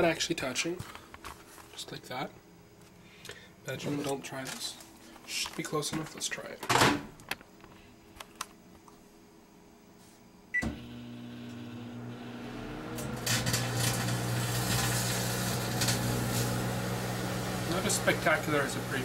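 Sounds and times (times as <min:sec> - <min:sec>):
microwave beep: 0:10.5 - 0:12.9
microwave humming: 0:10.5 - 0:19.0.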